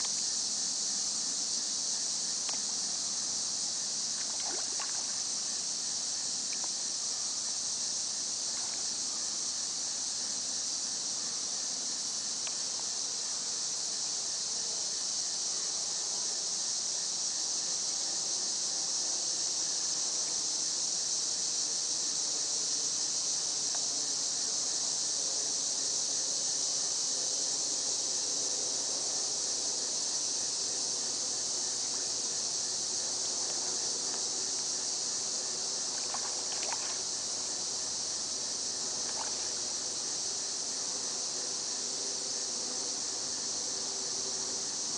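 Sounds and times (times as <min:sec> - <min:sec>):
insects chirping: 0:00.0 - 0:44.9
faint small water splashes: 0:04.1 - 0:05.2, 0:35.9 - 0:37.2, 0:39.0 - 0:39.6.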